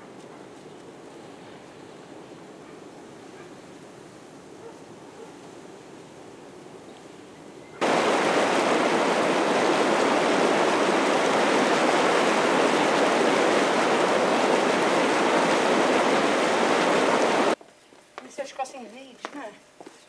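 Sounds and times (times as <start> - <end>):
faint outdoor ambience: 0.0 - 20.0
bubbling water rushing: 7.8 - 17.6.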